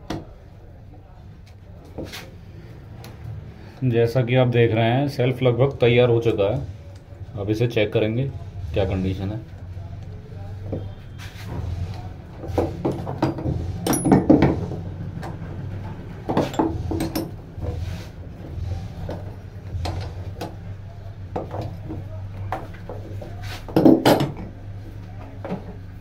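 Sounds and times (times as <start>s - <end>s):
steady low hum: 0.0s - 26.0s
metal tools clinking and scraping: 13.8s - 14.6s, 16.3s - 17.8s.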